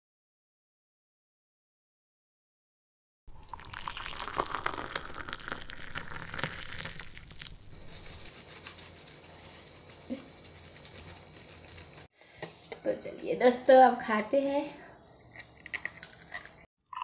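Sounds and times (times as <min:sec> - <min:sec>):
fingers rubbing corn cob: 0:07.8 - 0:12.1.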